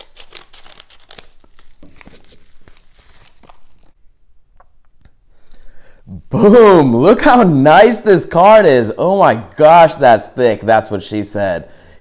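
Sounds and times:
packaging crinkling: 0.0 - 4.0.

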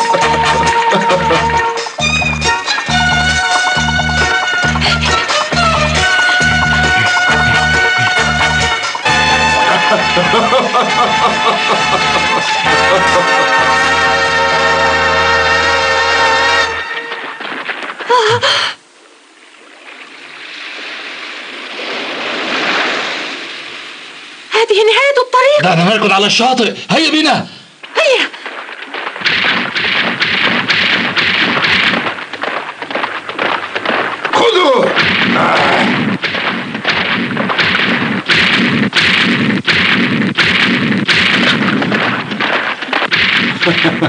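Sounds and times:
continuous rumble: 0.2 - 22.5, 26.9 - 44.0
heavy booming footsteps: 1.6 - 10.3, 16.7 - 18.7, 27.8 - 44.0
surf breaking on a beach: 19.8 - 24.4.

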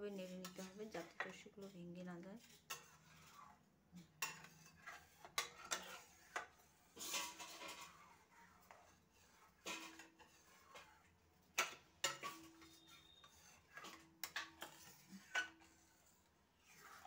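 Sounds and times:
steel spoon clinking against a pan: 2.4 - 3.1, 4.2 - 8.0, 9.6 - 15.7.

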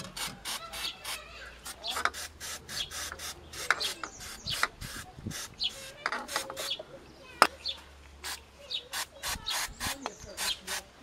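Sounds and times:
metal scraping and rubbing: 0.0 - 6.8.

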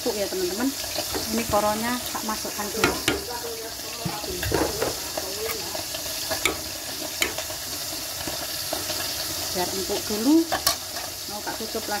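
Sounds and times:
spoon stirring in a pot: 0.5 - 12.0
spoon clinking against metal pot: 2.8 - 3.4, 6.3 - 7.5.

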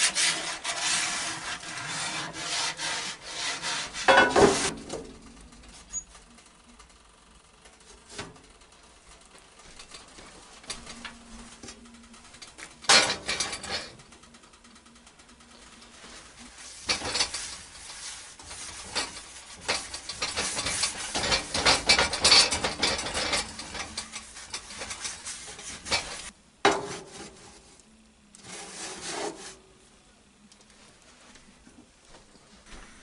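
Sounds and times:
paper towel scrubbing skillet: 0.0 - 4.8, 15.9 - 27.8, 28.4 - 29.7.

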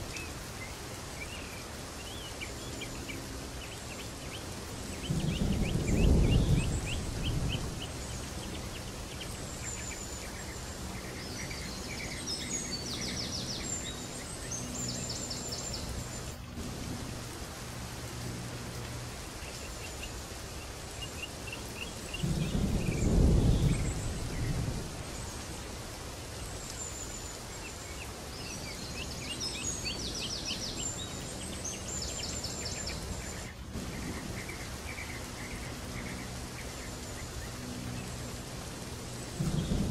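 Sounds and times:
birds chirping: 0.0 - 39.9
steady hiss: 0.0 - 39.9.

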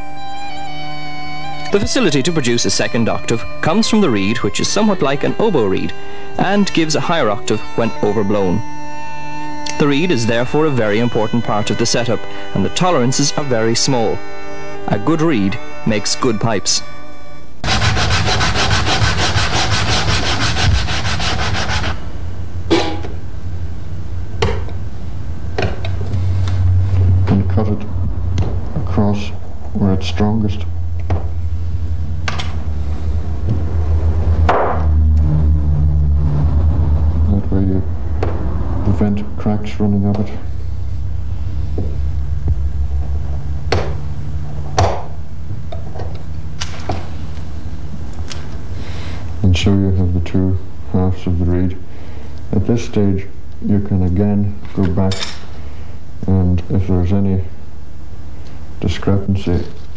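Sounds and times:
low electrical hum: 0.0 - 59.9
cane rubbing on sandpaper: 17.6 - 22.0.

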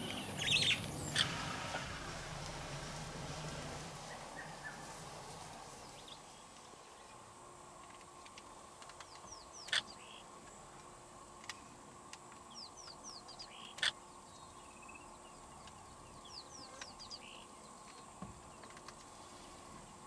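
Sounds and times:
bird chirping: 0.0 - 1.8, 4.0 - 5.1.

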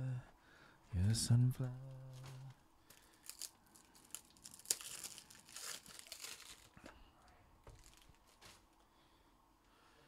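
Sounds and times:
plastic crinkling and rustling: 2.0 - 7.0, 7.6 - 8.8.

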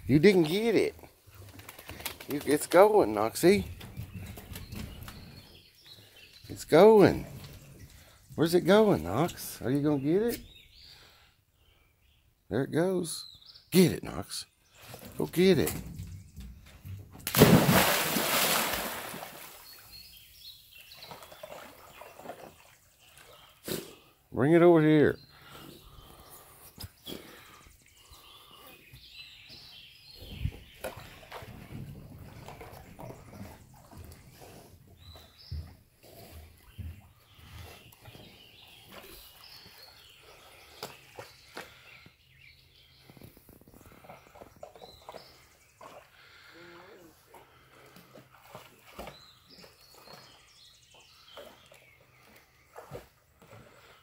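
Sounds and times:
dog splashing into water: 17.2 - 19.8
churning water: 17.3 - 19.9
bird chirping: 24.4 - 46.5.

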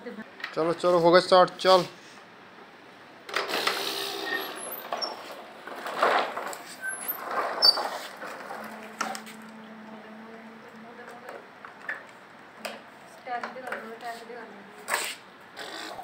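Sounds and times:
toy wheels rumbling on bricks: 3.4 - 9.6
loads rattling and clicking: 4.4 - 9.4.

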